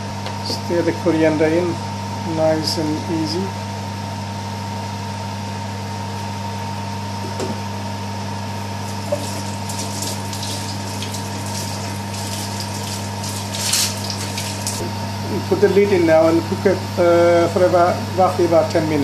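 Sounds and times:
pot simmering and bubbling: 8.8 - 14.9.

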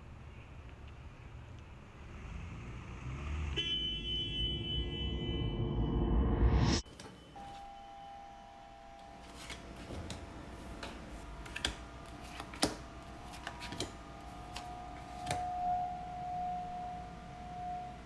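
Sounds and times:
faint steady ringing tone: 3.6 - 18.0
cards snapping and tapping: 10.8 - 15.4.

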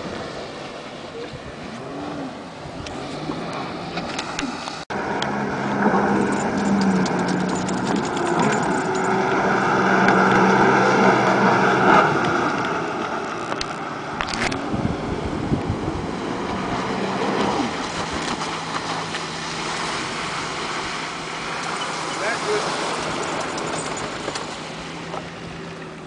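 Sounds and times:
jet ski engine: 0.0 - 26.0
water rushing: 0.0 - 26.0
wind on microphone: 5.0 - 22.0.

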